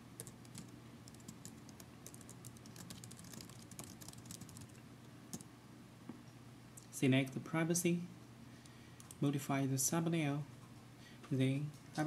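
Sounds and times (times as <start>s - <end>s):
keyboard keys clicking: 0.2s - 5.4s.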